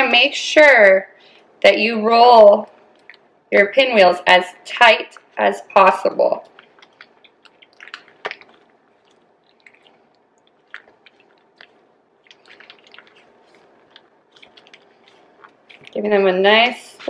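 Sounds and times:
tortilla squishing and rustling: 0:06.4 - 0:17.0.

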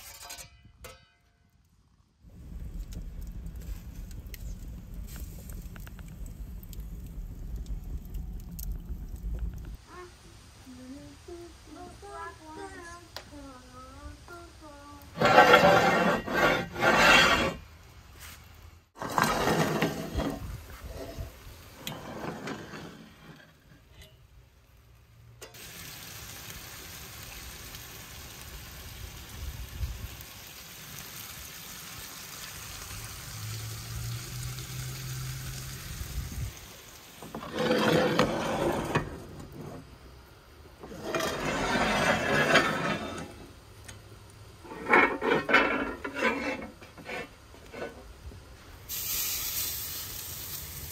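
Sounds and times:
cast iron scraping on brick: 0:00.0 - 0:01.0, 0:15.1 - 0:17.7, 0:19.0 - 0:24.2, 0:37.2 - 0:39.9, 0:40.8 - 0:43.6, 0:44.6 - 0:48.2
potatoes sizzling in a skillet: 0:02.3 - 0:08.6, 0:09.4 - 0:50.9.

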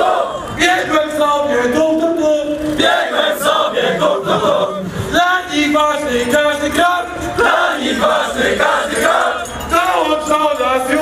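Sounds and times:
group chanting and singing: 0:00.0 - 0:00.9, 0:02.8 - 0:05.0, 0:05.9 - 0:09.6.

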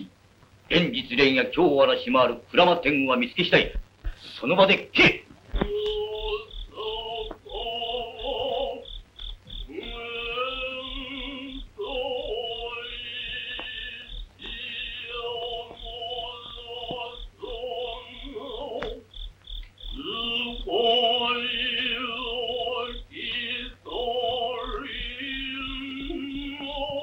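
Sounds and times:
person singing: 0:05.6 - 0:08.9, 0:09.7 - 0:19.1, 0:20.0 - 0:27.0.

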